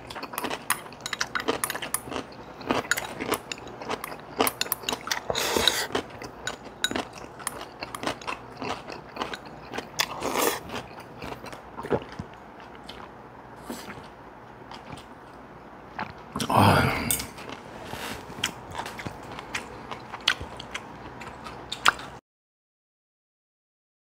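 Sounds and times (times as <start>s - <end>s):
crunching and chewing food: 0.0s - 22.2s.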